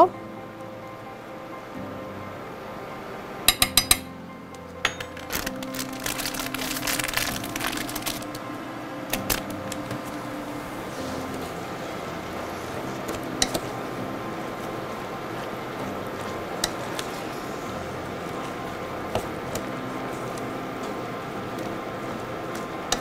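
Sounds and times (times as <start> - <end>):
plastic packet crinkling: 5.1 - 8.5, 9.1 - 10.2
spatula stirring in a pot: 10.7 - 23.0.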